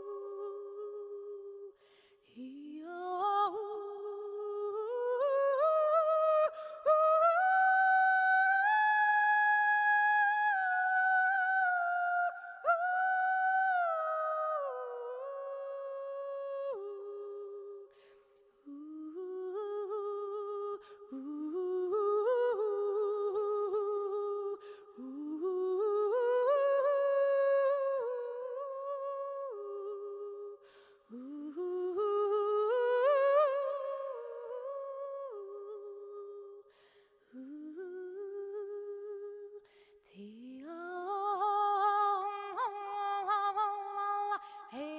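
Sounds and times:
person singing wordless melody: 0.0s - 17.9s.

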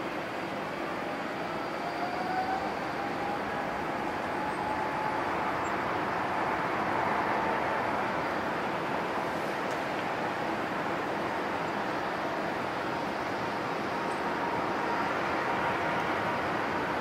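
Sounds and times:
jet engines rushing and whining: 0.0s - 17.0s.

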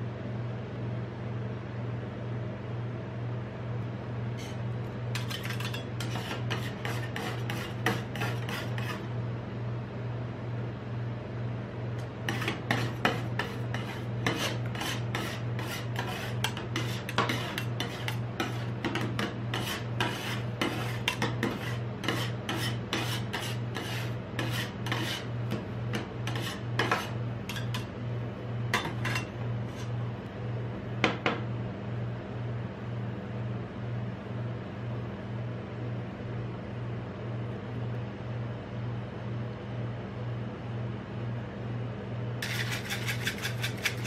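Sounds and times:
steady low hum: 0.0s - 44.0s
metal spatulas chopping and scraping: 4.4s - 9.1s, 12.3s - 27.9s, 28.7s - 29.9s, 42.4s - 44.0s.

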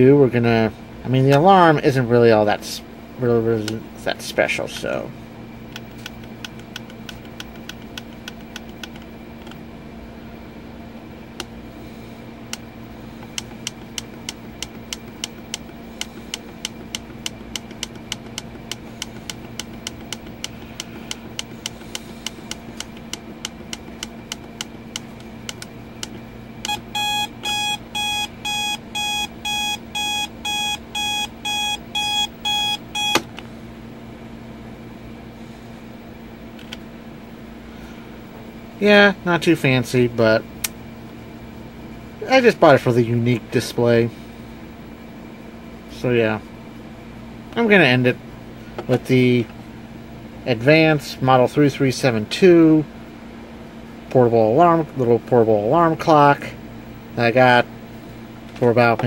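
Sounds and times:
pulsed electronic alarm beeps: 26.6s - 33.2s.

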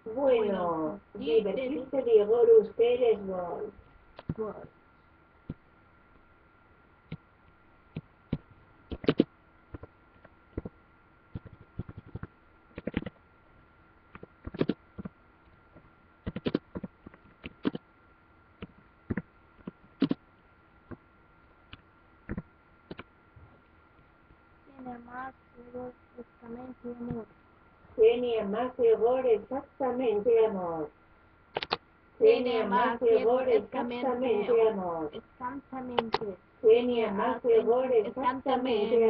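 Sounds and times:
faint electrical hum: 0.0s - 39.0s
keyboard key clicks: 16.3s - 17.8s, 31.6s - 31.8s.

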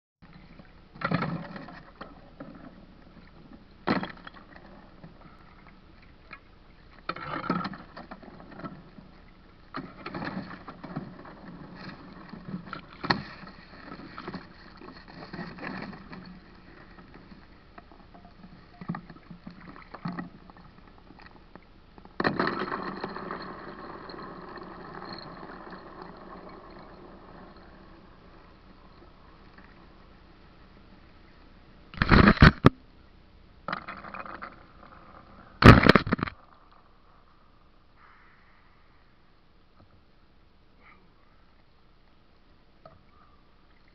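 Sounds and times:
water splashing and sloshing: 0.2s - 30.2s.

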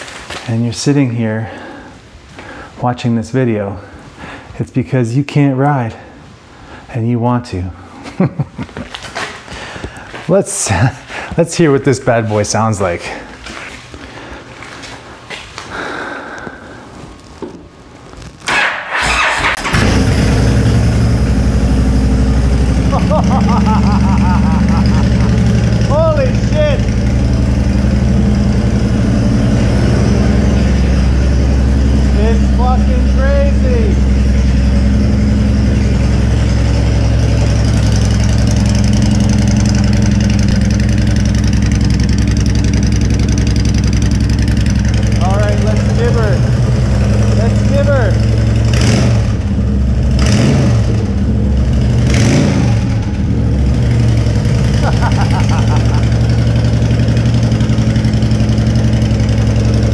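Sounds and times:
electric starter cranking: 18.5s - 20.6s
motorcycle engine idling: 19.9s - 59.9s.

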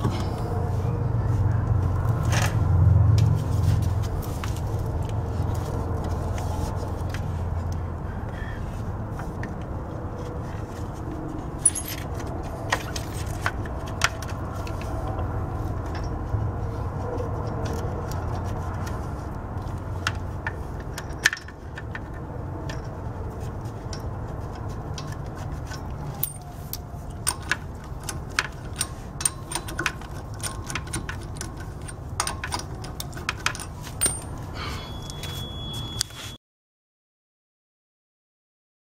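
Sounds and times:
metallic clicks of lug nuts: 19.6s - 23.1s, 23.7s - 35.2s.

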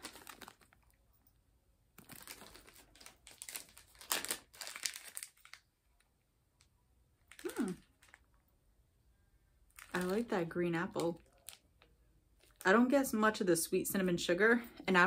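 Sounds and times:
plastic bag crinkling: 0.0s - 1.0s, 2.0s - 6.1s, 7.2s - 8.4s, 9.7s - 12.8s.

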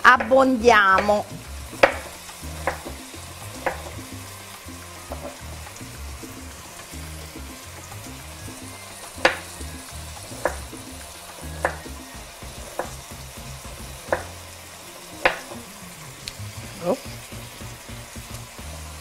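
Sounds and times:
meat sizzling in a frying pan: 0.0s - 19.0s
knife knocking on cutting board: 1.8s - 3.0s, 14.1s - 14.3s.

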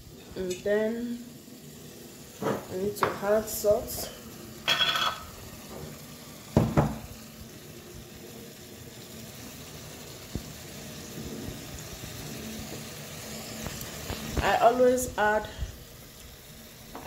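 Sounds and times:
stew sizzling in a pot: 0.0s - 17.0s
metal spoon clanking against pot: 4.7s - 5.3s.

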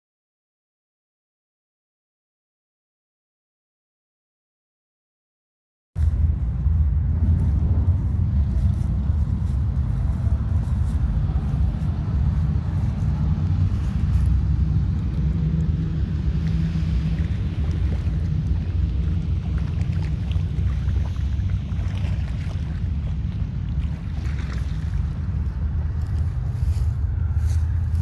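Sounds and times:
wind buffeting microphone: 6.0s - 28.0s.

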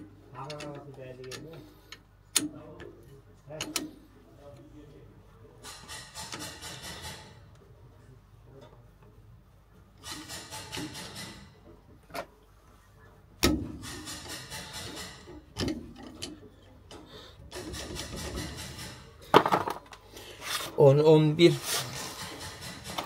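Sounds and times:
rapid ratchet clicking: 5.6s - 7.4s, 10.0s - 11.5s, 13.8s - 15.7s, 17.5s - 19.2s, 22.2s - 23.0s
sharp metal knocks: 5.6s - 7.4s, 13.4s - 16.2s.

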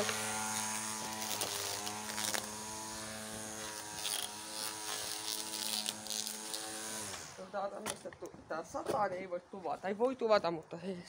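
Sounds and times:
trimmer line crackling on grass: 0.0s - 7.2s
string trimmer motor running: 0.0s - 7.4s.

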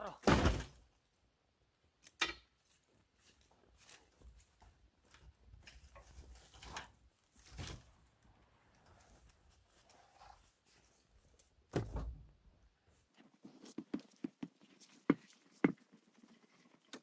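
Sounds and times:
heavy log thud: 0.2s - 0.8s.

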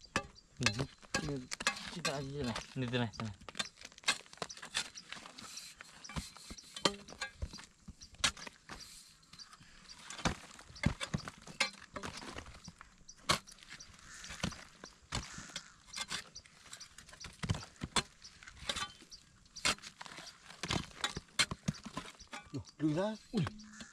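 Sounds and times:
dried clay chunks breaking: 0.2s - 5.3s.

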